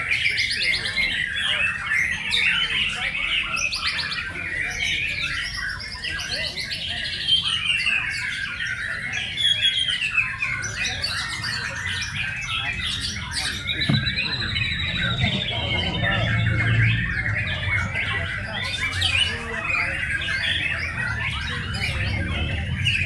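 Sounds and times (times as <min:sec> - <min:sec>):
chorus of songbirds trilling: 0:00.0 - 0:23.0.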